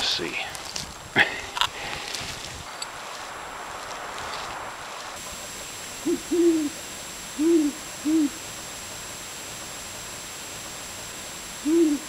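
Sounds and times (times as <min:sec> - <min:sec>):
owl hooting: 0:05.3 - 0:12.0.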